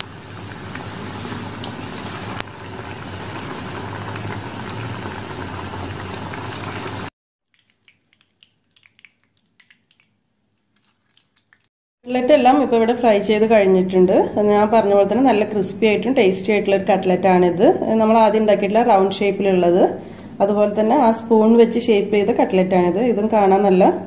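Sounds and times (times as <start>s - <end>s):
oil deep-frying sizzle: 0.0s - 7.1s.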